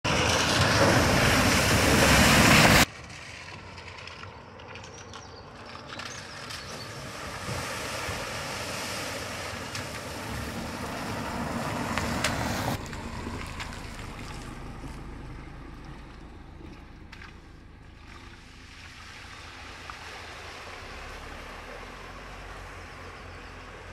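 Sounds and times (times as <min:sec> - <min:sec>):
car tyres splashing through water: 0:00.0 - 0:23.9
steady rush of water: 0:00.2 - 0:02.9, 0:06.8 - 0:14.6, 0:16.6 - 0:22.7.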